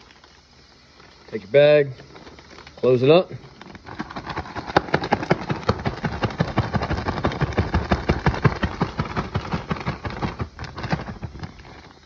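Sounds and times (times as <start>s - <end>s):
plastic bag shaken with fish and flour: 3.8s - 12.0s.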